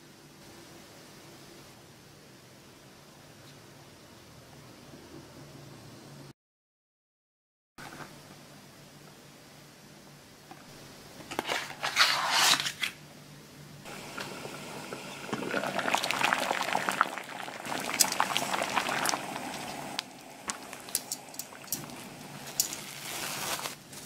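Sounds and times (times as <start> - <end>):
water boiling in a pot: 13.8 - 23.8
handling noise: 17.9 - 24.0.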